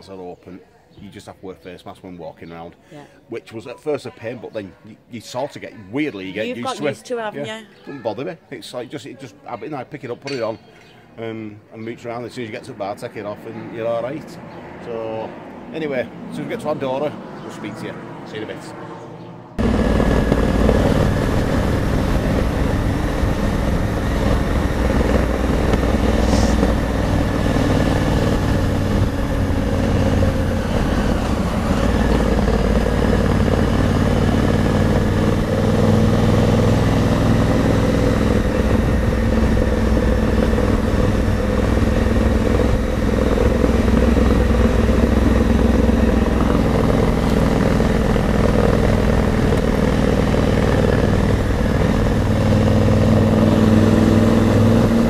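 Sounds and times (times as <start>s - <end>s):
wind rush: 19.6s - 34.7s
motorcycle engine running: 19.6s - 55.0s.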